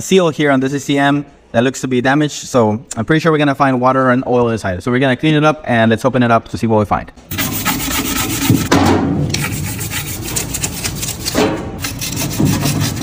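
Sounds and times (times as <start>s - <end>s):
stiff brush scrubbing metal: 7.3s - 13.0s.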